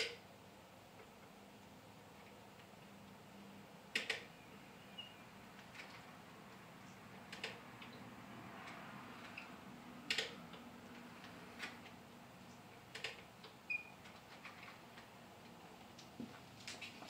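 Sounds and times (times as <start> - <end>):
faint squeak: 4.4 - 5.3.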